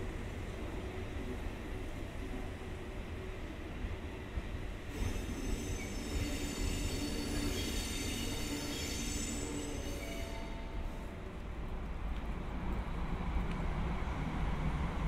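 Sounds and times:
low train rumble: 0.0 - 15.0
train wheels squealing on rails: 4.7 - 11.2.

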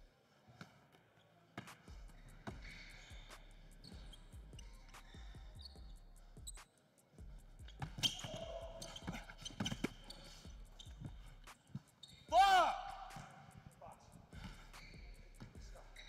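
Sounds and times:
basketball dribbling on wood floor: 7.6 - 11.3, 14.4 - 15.8.

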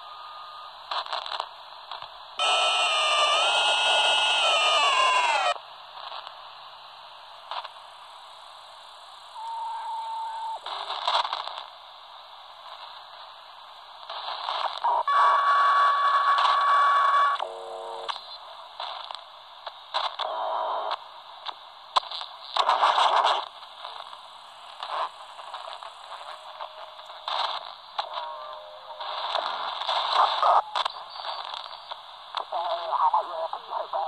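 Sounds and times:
radio signal bursts: 0.0 - 6.3, 9.3 - 11.6, 14.1 - 19.1, 22.1 - 34.0
radio static hissing and crackling: 0.0 - 34.0.

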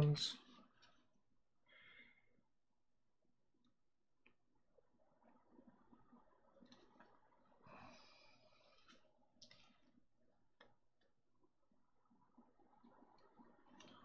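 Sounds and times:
faint plastic parts clicking: 0.4 - 1.2, 3.6 - 7.6, 8.5 - 14.0.

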